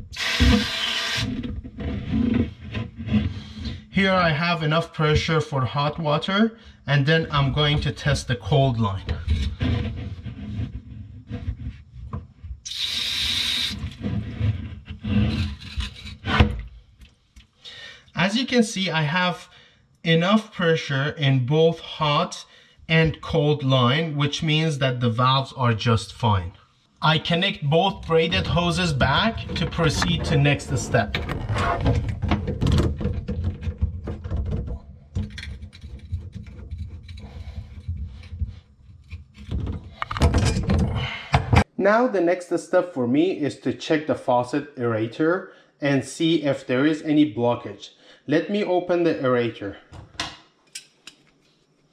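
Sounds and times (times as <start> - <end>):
rubbing and handling on valve: 0.1 - 3.9, 7.4 - 17.6, 27.0 - 41.7.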